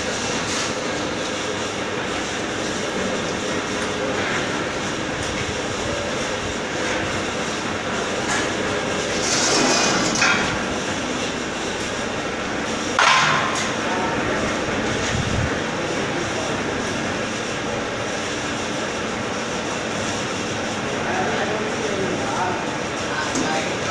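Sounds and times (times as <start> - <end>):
blender mechanical rumble and rattle: 0.0 - 13.0, 13.9 - 23.9
loud metal clanks: 13.0 - 13.8.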